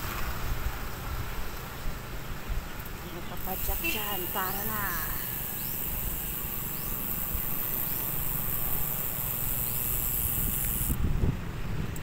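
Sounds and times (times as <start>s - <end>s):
wind rumbling on microphone: 9.1s - 12.0s.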